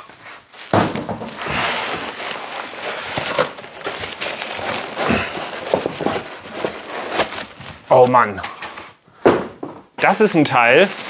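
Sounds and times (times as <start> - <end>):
packing material rustling: 0.1 - 8.3, 10.5 - 11.0.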